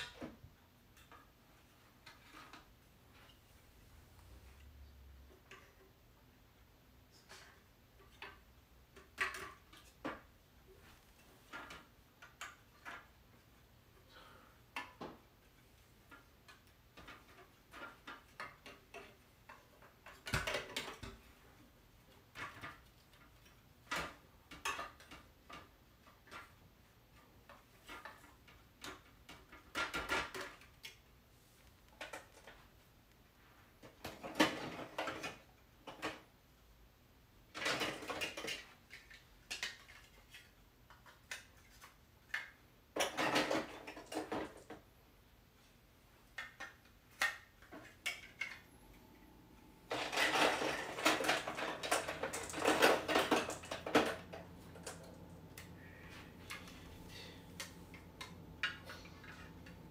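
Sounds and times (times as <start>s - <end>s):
plastic pieces clattering: 37.5s - 44.8s, 49.9s - 59.9s
plastic pieces clicking together: 49.9s - 55.8s.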